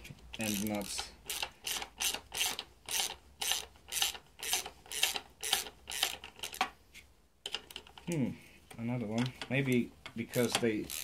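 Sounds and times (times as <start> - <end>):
ratchet wrench clicking: 0.4 - 6.6, 10.3 - 11.0.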